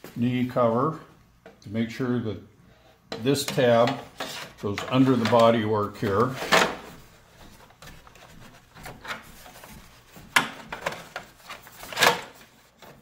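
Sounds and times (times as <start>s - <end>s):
plastic panels knocking and rubbing: 3.1s - 13.0s.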